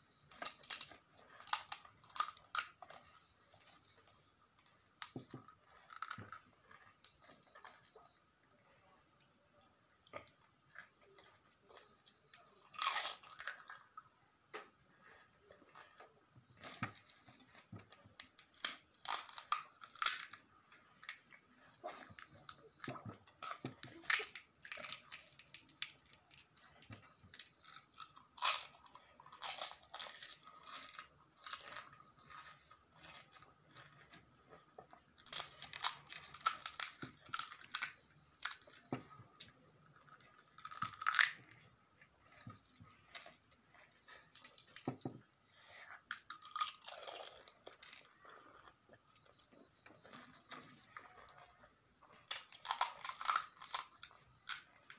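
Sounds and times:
quiet chewing: 0.0 - 54.9
crisp shells crunching: 0.3 - 2.8, 18.2 - 20.4, 35.2 - 38.8, 40.5 - 41.6, 52.1 - 54.7.

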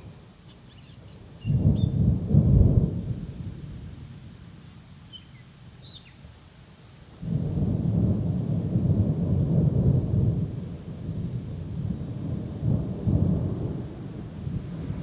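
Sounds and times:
thunder rumbling: 1.3 - 3.9, 7.2 - 15.0.

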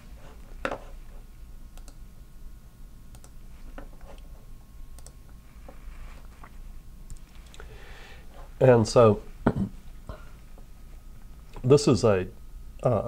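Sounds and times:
computer control clicks: 1.8 - 2.0, 3.1 - 3.4, 5.0 - 5.2.

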